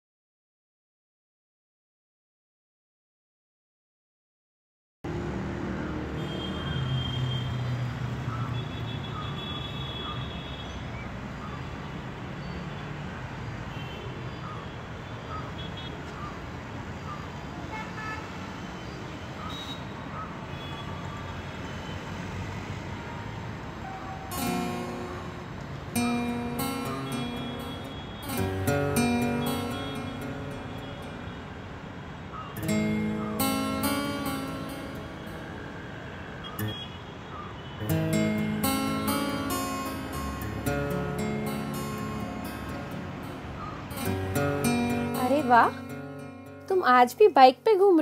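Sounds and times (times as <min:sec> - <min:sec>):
city street traffic: 0:05.0 - 0:48.0
car horns tooting: 0:06.2 - 0:07.6, 0:24.3 - 0:31.7, 0:32.6 - 0:45.8
strummed acoustic guitar: 0:24.3 - 0:31.5, 0:32.6 - 0:35.6, 0:37.8 - 0:46.7.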